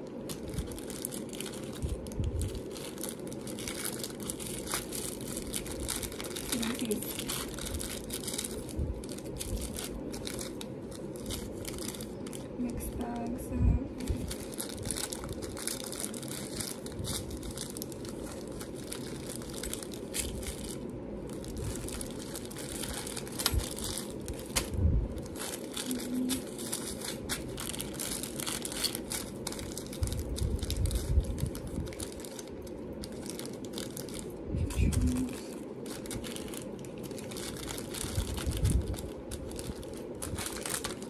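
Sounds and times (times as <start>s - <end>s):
packaging crinkling: 0.0s - 13.2s, 14.0s - 41.0s
low background hum: 0.0s - 41.0s.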